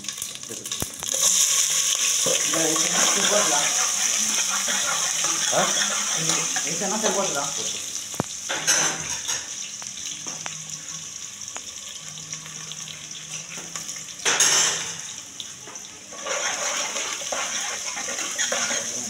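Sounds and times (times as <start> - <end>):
metal spoon scraping a pot: 16.1 - 19.0.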